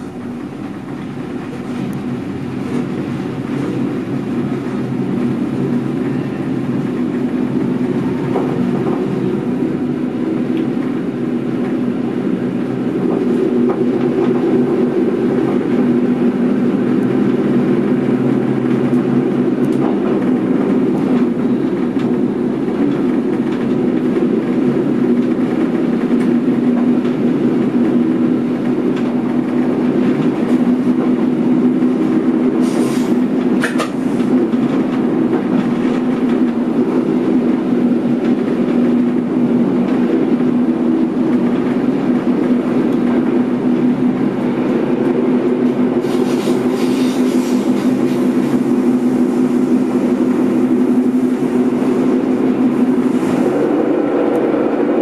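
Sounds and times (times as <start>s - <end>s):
train wheels on rails: 0.0s - 55.0s
light clicks from track: 33.5s - 34.3s.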